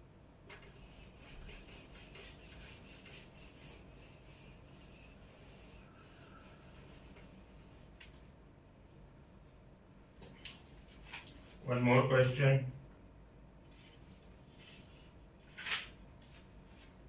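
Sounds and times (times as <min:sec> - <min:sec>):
duster rubbing on whiteboard: 0:00.5 - 0:08.0, 0:13.7 - 0:15.2.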